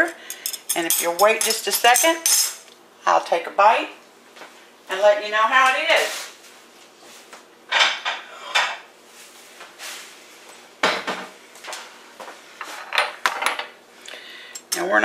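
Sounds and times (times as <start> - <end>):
metal utensils clinking on dishes: 0.0 - 2.6.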